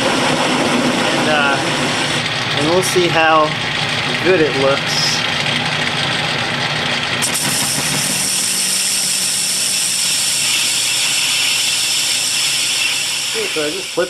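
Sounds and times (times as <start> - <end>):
lathe motor hum: 0.0 - 14.0
lathe tool cutting hiss: 7.2 - 14.0.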